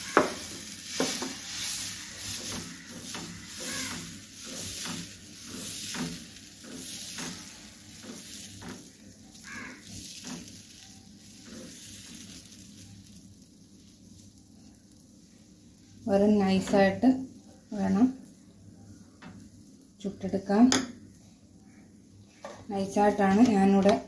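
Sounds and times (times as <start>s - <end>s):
batter sizzling on hot pan: 0.0s - 24.0s
ladle swishing batter: 0.5s - 16.0s.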